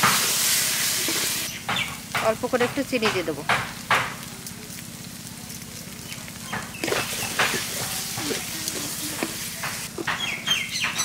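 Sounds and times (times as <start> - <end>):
spatula scraping a pan: 0.0 - 1.5, 6.8 - 10.2
mash sizzling in a wok: 0.0 - 11.0.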